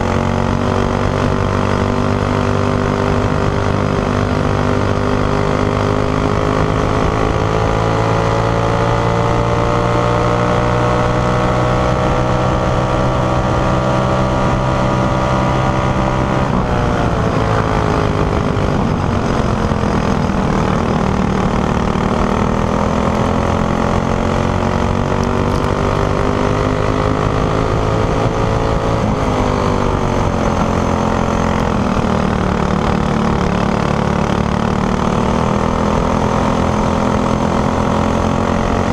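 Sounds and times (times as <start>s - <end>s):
kart engine accelerating: 0.0s - 38.9s.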